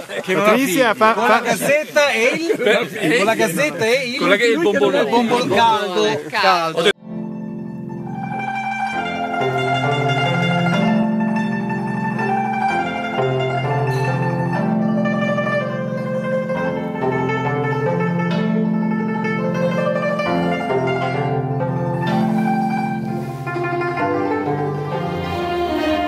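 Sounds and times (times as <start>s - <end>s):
plucked zither melody: 7.0s - 26.0s.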